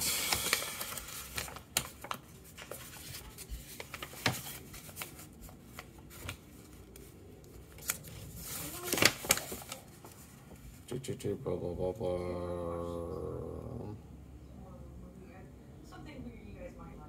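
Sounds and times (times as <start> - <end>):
packaging rustling: 0.0 - 10.6.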